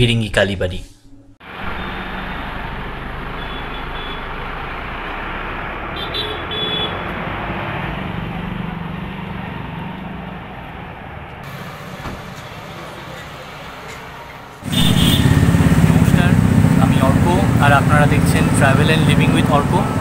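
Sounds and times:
motorcycles and bus passing: 0:01.4 - 0:20.0
short horn beep: 0:01.6 - 0:02.2, 0:14.7 - 0:15.5.

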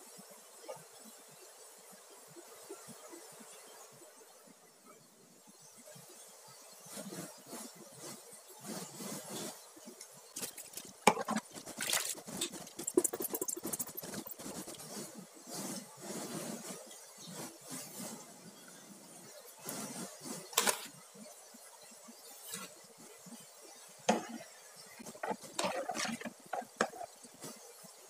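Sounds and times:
rice and water splashing into pot: 0:10.3 - 0:14.8, 0:24.1 - 0:27.4.

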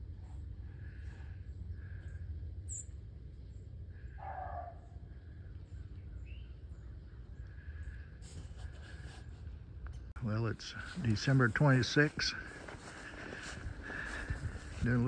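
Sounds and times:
low steady rumble: 0:00.0 - 0:15.0
small birds chirping: 0:00.8 - 0:08.1.

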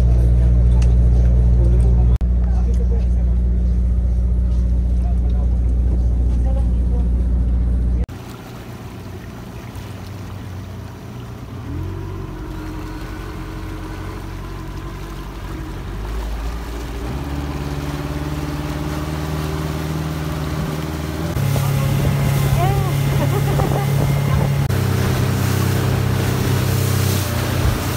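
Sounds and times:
outboard motor running: 0:00.0 - 0:27.9
water rushing past hull: 0:08.0 - 0:27.9.

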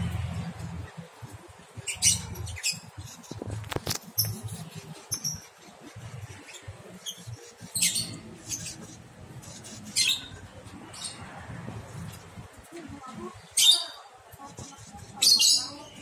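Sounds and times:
lovebirds squeaking: 0:01.7 - 0:11.4, 0:13.1 - 0:16.0.

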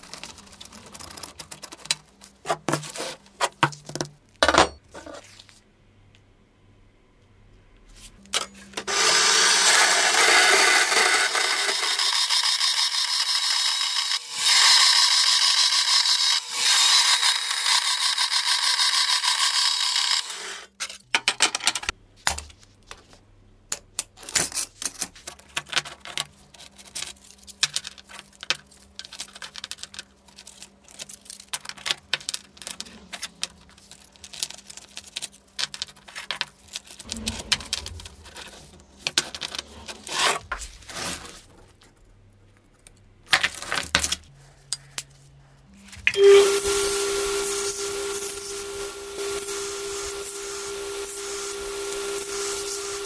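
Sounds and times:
power tool cutting steel: 0:08.9 - 0:20.7, 0:46.2 - 0:53.0.

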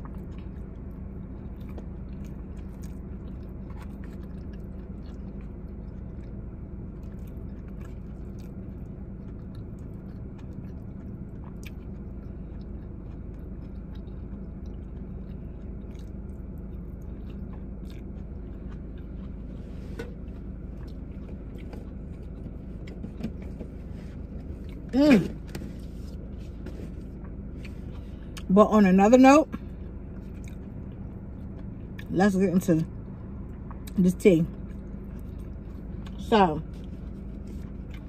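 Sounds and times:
chewing and crunching: 0:00.0 - 0:38.0
low car hum: 0:00.0 - 0:38.0.

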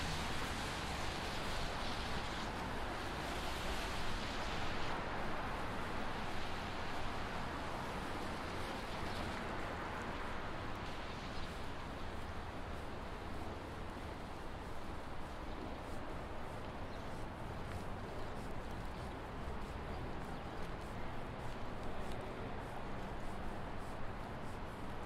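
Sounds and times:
city street traffic noise: 0:00.0 - 0:25.0.

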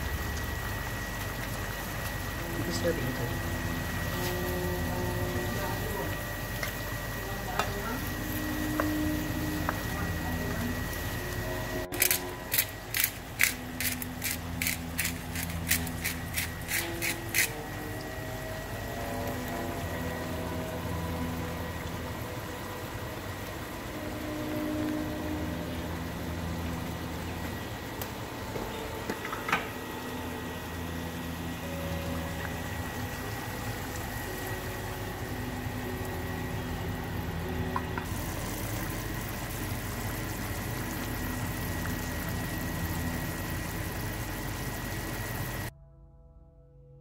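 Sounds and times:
low kitchen noise: 0:00.0 - 0:45.7
spice grinder clicking: 0:12.0 - 0:17.5.

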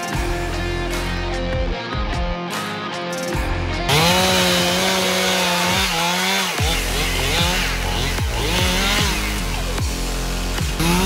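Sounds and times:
chainsaw cutting wood: 0:03.9 - 0:11.0.

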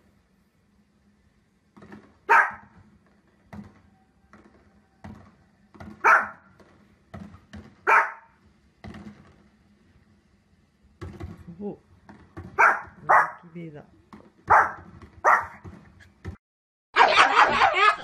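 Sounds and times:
small dog barking: 0:02.3 - 0:02.7, 0:06.0 - 0:06.5, 0:07.8 - 0:08.4, 0:12.6 - 0:13.4, 0:14.5 - 0:15.6.

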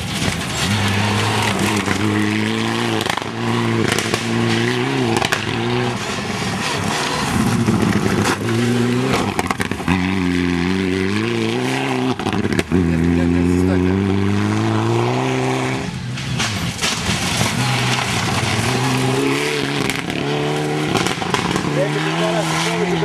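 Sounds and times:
car engine revving hard: 0:00.0 - 0:23.0
sharp cracks: 0:02.9 - 0:04.6, 0:16.1 - 0:19.1.

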